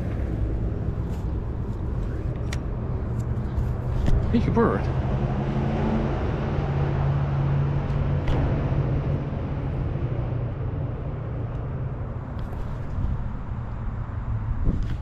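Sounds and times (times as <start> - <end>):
distant engine drone: 0.0 - 15.0.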